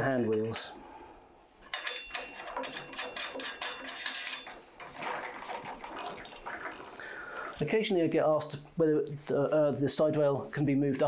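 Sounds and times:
metal fittings clicking and rattling: 1.6 - 6.4.

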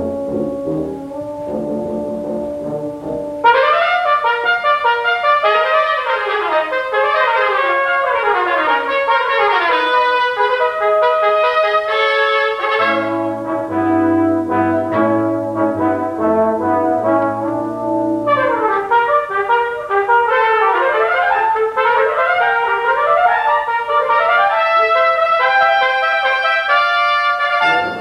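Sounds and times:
trumpets and horn fast notes: 0.0 - 28.0
tuba and trombone low notes: 0.0 - 28.0.

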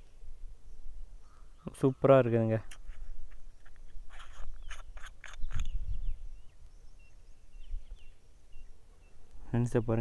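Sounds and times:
faint high bird chirps: 0.0 - 2.4, 3.3 - 10.0
cap twisting clicks and scrapes: 2.6 - 5.8.

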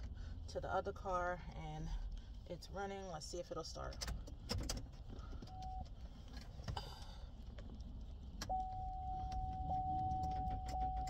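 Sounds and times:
car dashboard warning beeps: 5.5 - 6.0, 8.4 - 11.0.

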